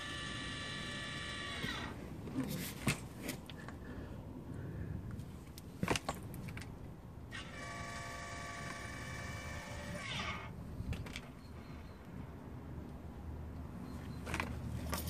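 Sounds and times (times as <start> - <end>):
valve motor whining: 0.0 - 2.0, 7.3 - 10.5.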